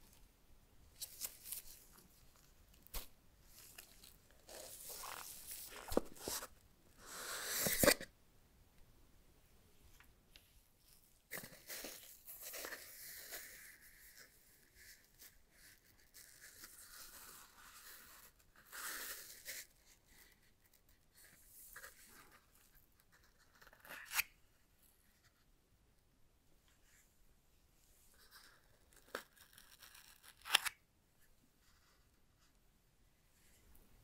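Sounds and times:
gloves rustling on headphones: 0.9 - 6.6.

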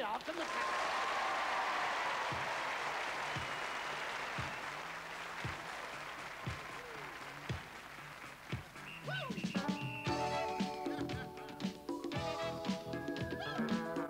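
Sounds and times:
studio audience applauding: 0.0 - 10.0.

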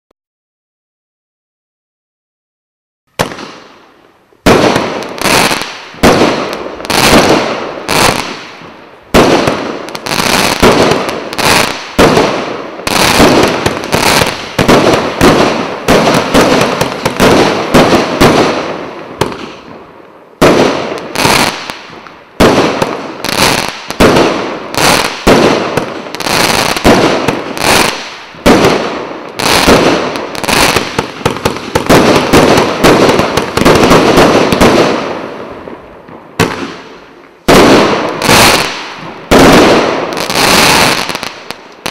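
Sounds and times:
firework shots banging: 4.5 - 19.8, 26.7 - 35.2.

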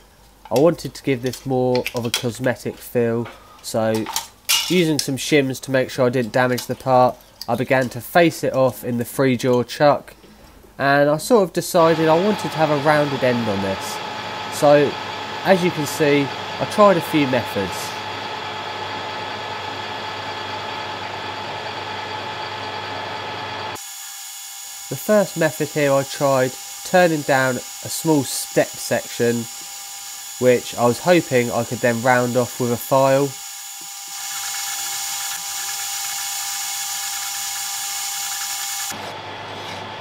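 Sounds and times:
lathe machine hum: 11.9 - 40.0.

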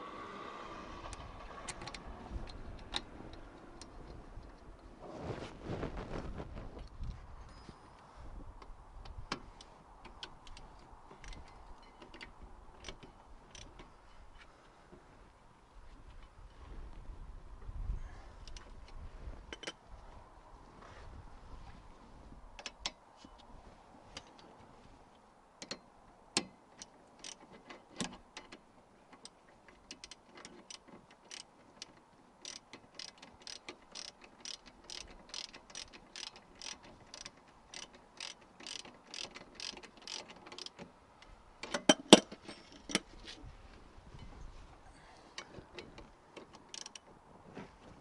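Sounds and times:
socket ratchet clicking: 26.4 - 27.4, 29.9 - 40.8, 46.6 - 47.0.

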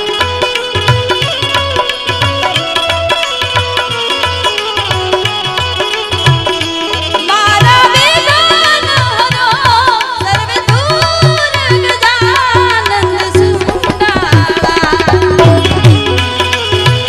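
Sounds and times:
woman singing: 7.2 - 17.0
hand drum beat: 9.0 - 17.0.

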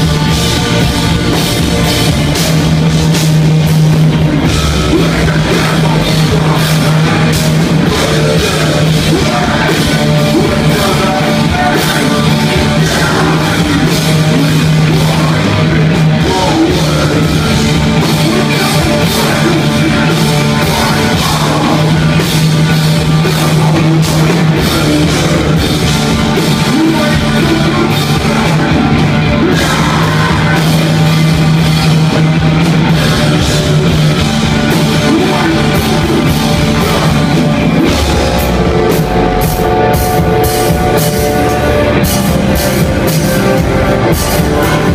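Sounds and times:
bass guitar: 0.0 - 44.9
distorted electric guitars: 0.0 - 44.9
drum kit with cymbals: 0.0 - 44.9
sung and shouted vocals: 4.4 - 31.7, 32.7 - 44.9.

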